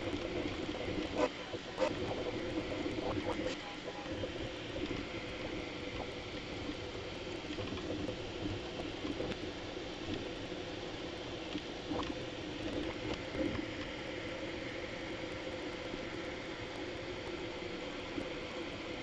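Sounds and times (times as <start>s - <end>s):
printer motors and fans churning: 0.0s - 19.0s
small ticks: 4.8s - 10.3s, 11.4s - 14.0s.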